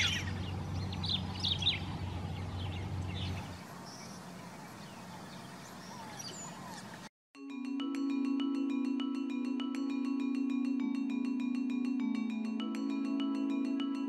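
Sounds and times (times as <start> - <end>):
birds chirping: 0.0 - 7.1.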